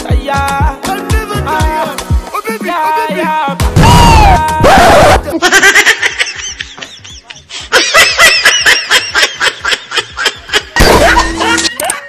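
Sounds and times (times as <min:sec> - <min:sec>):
high-pitched laughter: 0:04.8 - 0:12.0.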